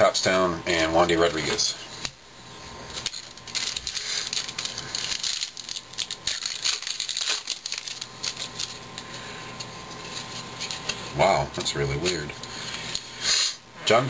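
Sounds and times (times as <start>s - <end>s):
foil wrapper crinkling: 2.8s - 13.3s
foil wrapper tearing: 2.9s - 13.2s.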